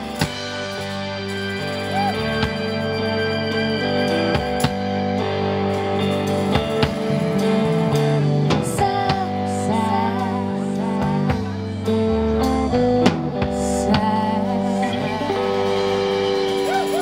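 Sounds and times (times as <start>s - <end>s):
tambourine: 0.0s - 4.8s
drum kit: 0.0s - 17.0s
electric bass: 0.0s - 17.0s
electric guitar: 0.0s - 17.0s.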